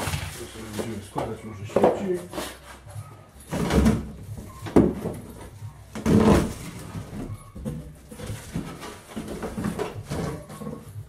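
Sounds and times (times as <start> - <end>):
plastic packaging and cardboard rustling: 0.0 - 11.0.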